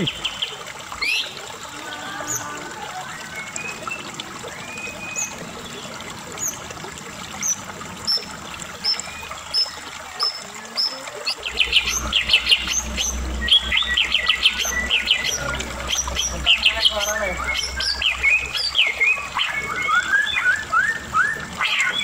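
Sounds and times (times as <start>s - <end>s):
bird singing: 8.8s - 22.0s.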